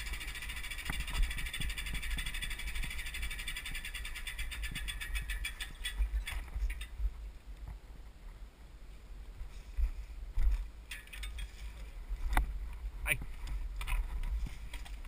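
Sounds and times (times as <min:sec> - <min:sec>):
bike clicks and rattles: 0:00.0 - 0:07.0, 0:10.4 - 0:12.5, 0:13.3 - 0:15.0
low rumble of bike on trail: 0:00.0 - 0:15.0.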